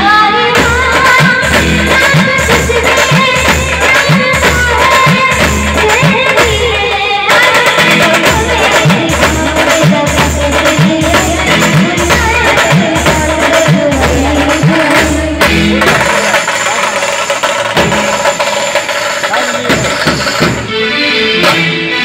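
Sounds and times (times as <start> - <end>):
band music: 0.0 - 22.0
deep drum beat: 7.8 - 20.7.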